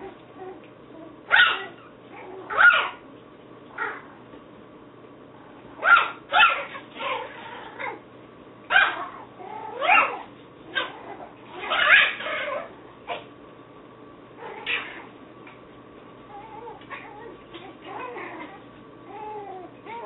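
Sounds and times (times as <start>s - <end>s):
puppies yipping and whining: 1.3s - 3.0s, 8.7s - 13.2s, 16.3s - 20.0s.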